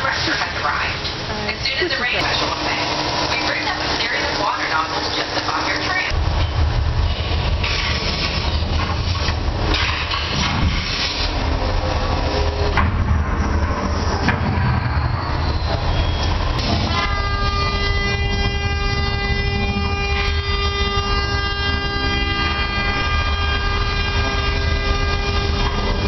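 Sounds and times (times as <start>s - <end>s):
steady blaring horn: 2.2s - 6.2s, 16.0s - 26.0s
deep constant rumble: 16.3s - 26.0s.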